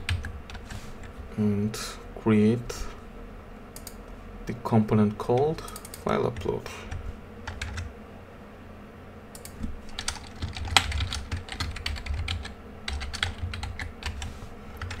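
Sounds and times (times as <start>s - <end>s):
typing on computer keyboard: 7.5s - 7.9s, 9.4s - 15.0s.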